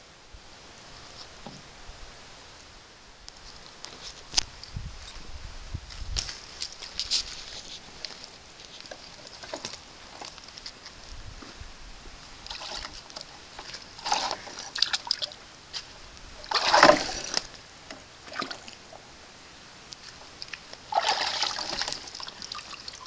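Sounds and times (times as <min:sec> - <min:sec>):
water splashing in plastic bucket: 0:12.5 - 0:18.9, 0:20.4 - 0:23.0.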